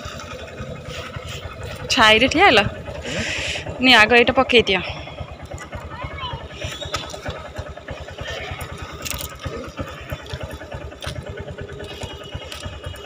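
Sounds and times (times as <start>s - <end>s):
motorcycle engine idling: 0.0s - 13.0s
handling clicks and rustles: 5.2s - 13.0s.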